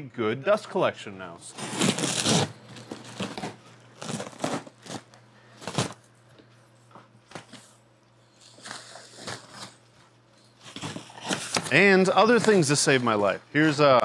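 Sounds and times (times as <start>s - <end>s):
plastic packing crinkling: 1.5s - 6.0s.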